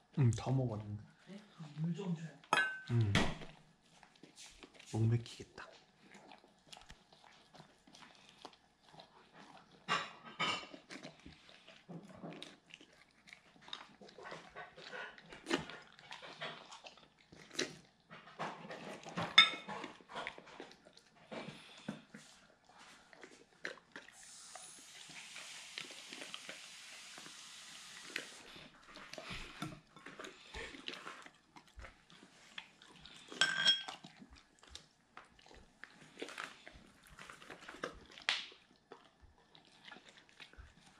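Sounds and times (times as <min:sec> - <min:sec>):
dog chewing and licking: 0:00.2 - 0:40.9
steady hiss: 0:24.2 - 0:28.5.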